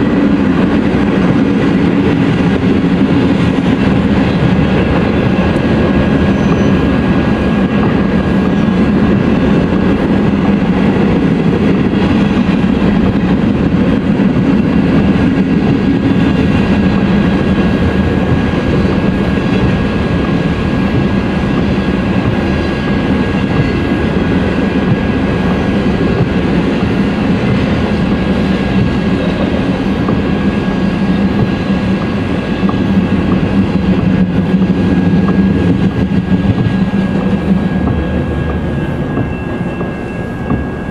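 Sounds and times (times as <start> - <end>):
freight train wheels rumbling on rail: 0.0 - 40.9
thin steady whine: 24.9 - 40.9.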